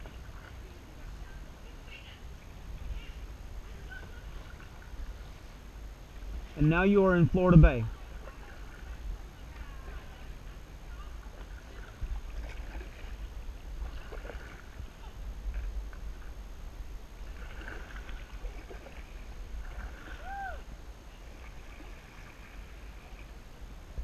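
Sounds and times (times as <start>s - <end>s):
paddle splashing in water: 0.0s - 1.4s, 2.8s - 6.8s, 7.4s - 16.4s, 17.0s - 24.0s
low rumble: 2.4s - 7.9s.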